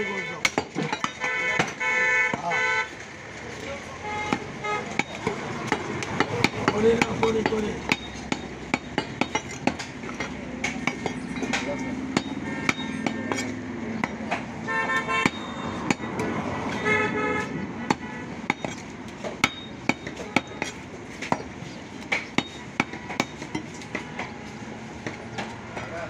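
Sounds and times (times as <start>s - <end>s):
market din: 0.0s - 26.0s
horn beeping in pulses: 14.7s - 16.0s.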